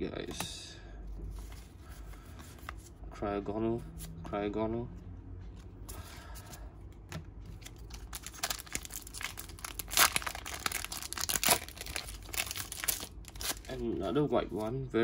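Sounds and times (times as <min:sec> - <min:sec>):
foil pack crinkling and tearing: 0:07.7 - 0:13.8.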